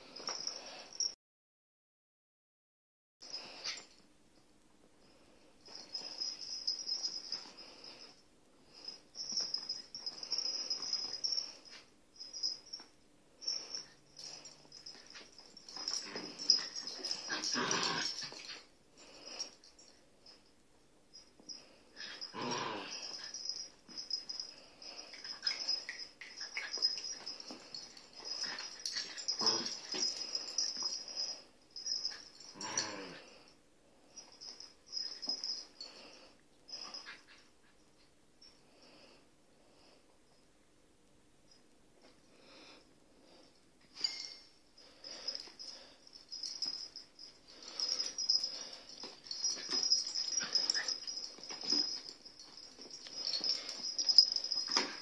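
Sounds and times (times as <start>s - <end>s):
dogs snuffling and wheezing: 3.2s - 4.0s, 5.1s - 20.5s, 21.1s - 40.2s, 42.0s - 55.0s
dogs scuffling and snuffling: 46.4s - 55.0s.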